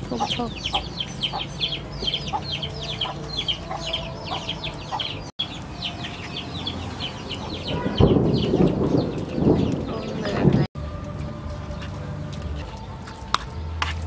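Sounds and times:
chickens chirping: 0.0 - 10.7.

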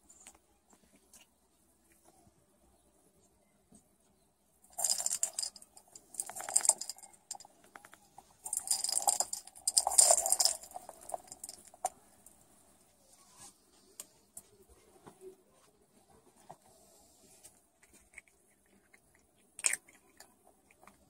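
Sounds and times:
treats rattling in plastic ball: 4.7 - 12.4.

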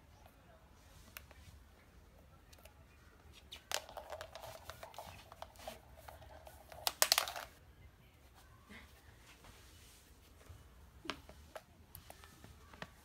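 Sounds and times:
ball knocking: 3.6 - 7.6
plastic ball rolling on wooden floor: 3.6 - 7.6.

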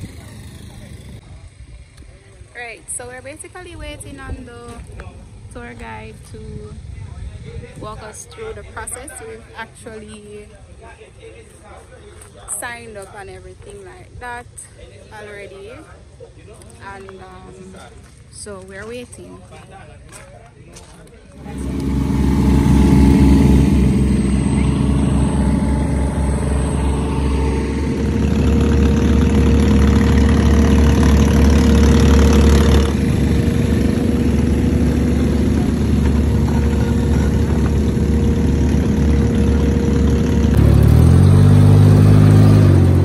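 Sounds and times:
dune buggy engines idling: 0.0 - 10.2, 21.4 - 43.0
engine revving: 21.4 - 43.0.

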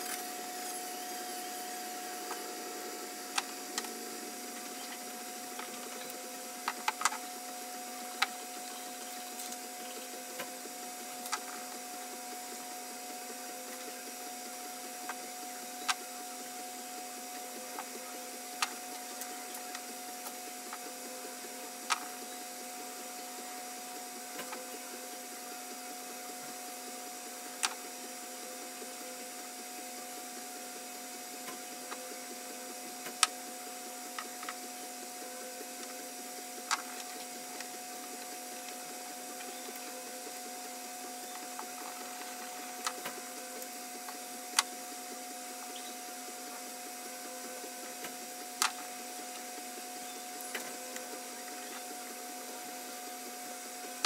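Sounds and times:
machine hum with whine: 0.0 - 54.0.

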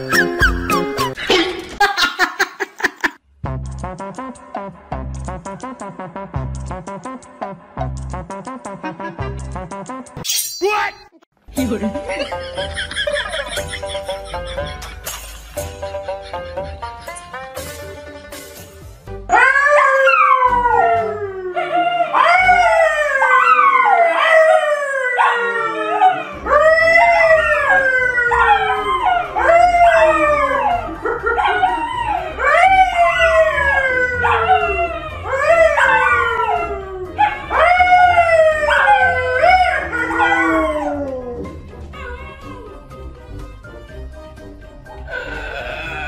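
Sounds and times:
man and dogs howling: 19.3 - 42.8.

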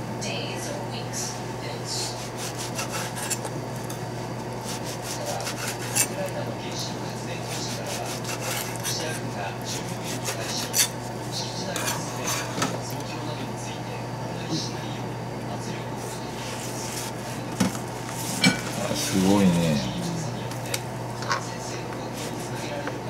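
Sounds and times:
knife slicing fish: 2.2 - 3.4, 4.6 - 6.2, 7.4 - 11.0.

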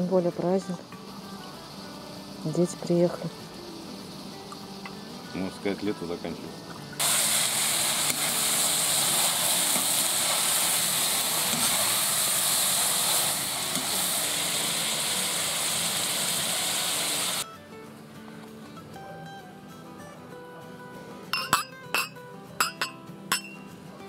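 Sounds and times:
meat and onions sizzling: 0.0 - 17.4.

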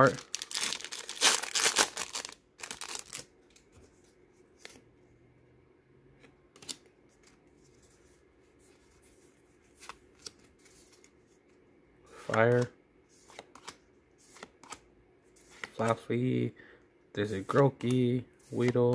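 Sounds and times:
foil wrapper crinkling and tearing: 0.0 - 3.3.

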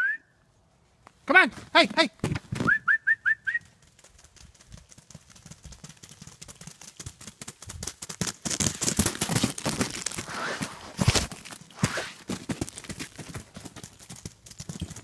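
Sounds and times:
dog paws crunching on snow: 7.9 - 15.0.

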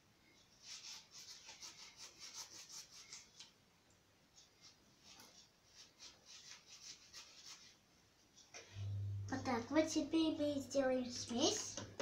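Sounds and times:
sponge scrubbing: 0.6 - 3.4, 4.4 - 7.8.

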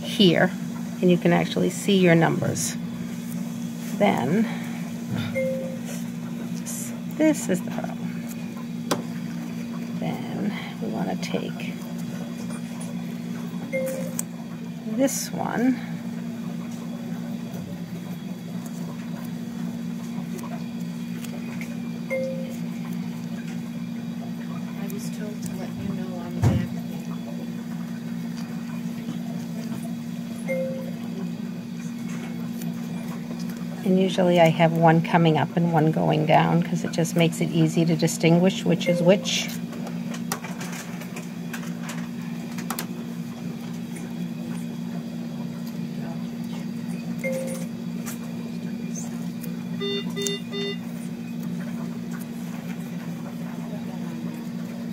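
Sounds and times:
steady low hum: 0.0 - 54.9
short beep: 49.8 - 50.8.

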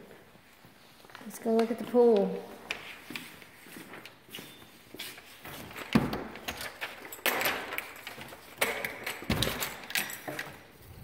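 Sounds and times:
door lock clicks and rattles: 5.7 - 10.8.

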